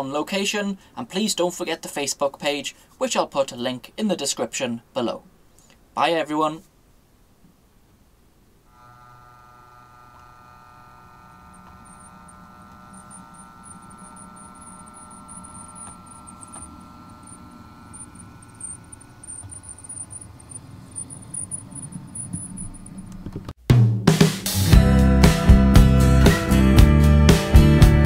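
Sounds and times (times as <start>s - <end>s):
model train engine drone: 8.7s - 23.1s
wheels clicking on track: 11.5s - 23.5s
loud music: 23.8s - 28.0s.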